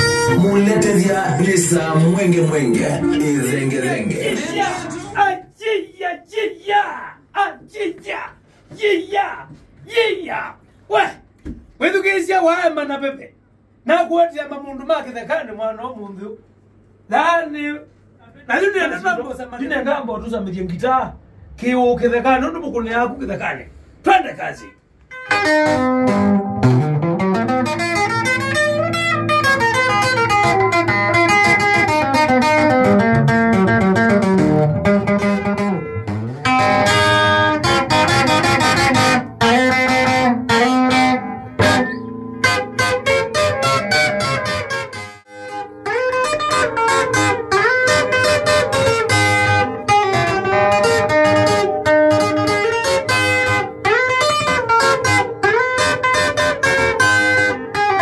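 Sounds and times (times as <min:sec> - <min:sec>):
plucked guitar band music: 0:00.0 - 0:05.2, 0:25.1 - 0:58.0.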